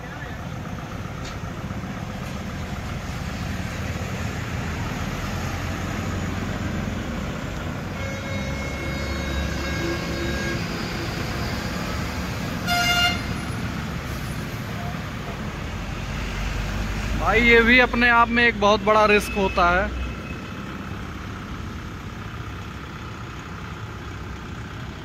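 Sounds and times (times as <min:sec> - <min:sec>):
road traffic passing: 0:00.0 - 0:25.0
tractor diesel engine running: 0:00.0 - 0:25.0
vehicle horn toot: 0:07.9 - 0:10.8, 0:12.6 - 0:13.5.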